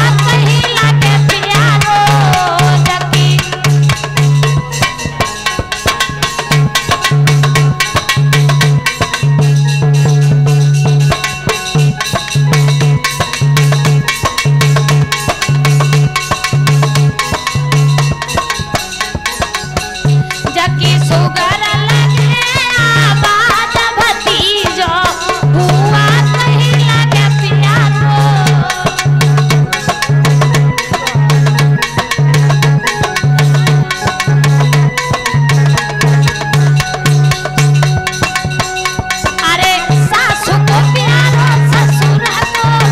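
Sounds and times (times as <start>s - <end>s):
fast hand drumming: 0.0s - 42.9s
electronic keyboard melody: 27.4s - 42.8s.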